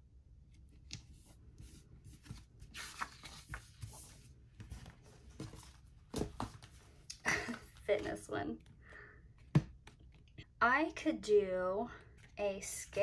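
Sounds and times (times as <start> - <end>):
paper rustling and scraping: 0.9 - 6.9.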